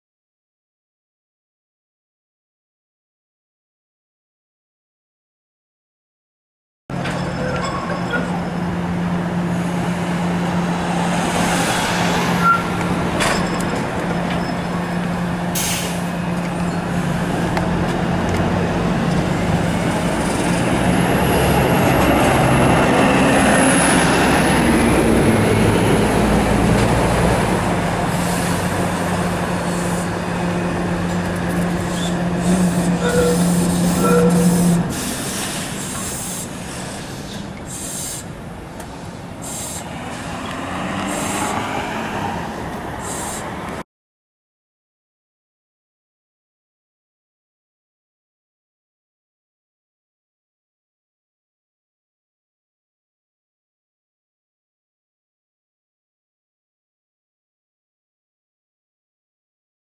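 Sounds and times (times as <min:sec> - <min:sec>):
streetcar running on track: 0:06.9 - 0:43.8
wheels squealing on curve: 0:07.1 - 0:08.6, 0:11.6 - 0:15.1, 0:31.2 - 0:38.3, 0:39.4 - 0:41.9.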